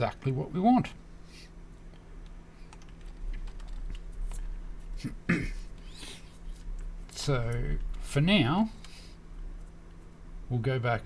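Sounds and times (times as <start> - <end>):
low steady hum: 0.0 - 11.0
keyboard and mouse clicks: 2.7 - 4.4.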